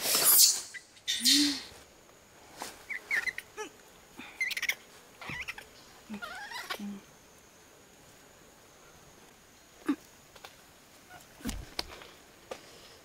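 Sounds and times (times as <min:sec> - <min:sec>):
monkey squeaking and chirping: 0:00.2 - 0:01.6, 0:02.9 - 0:03.5, 0:04.4 - 0:06.8.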